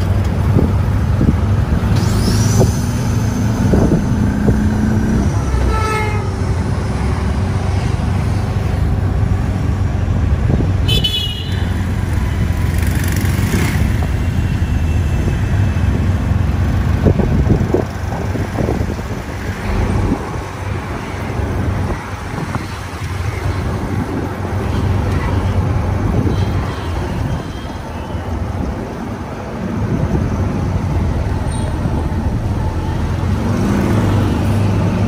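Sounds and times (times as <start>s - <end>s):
road noise: 0.0s - 35.0s
vehicle horn toot: 10.8s - 11.8s.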